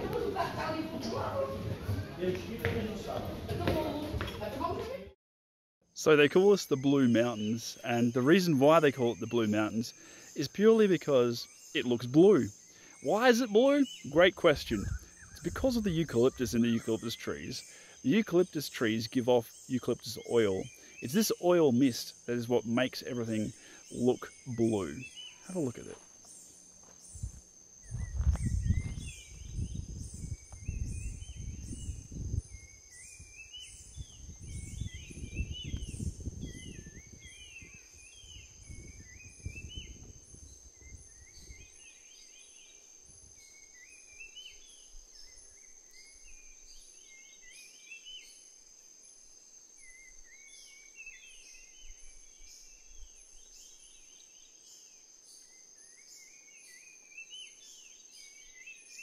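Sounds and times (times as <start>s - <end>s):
high-pitched insect drone: 7.0s - 53.6s
wind buffeting microphone: 27.1s - 41.7s.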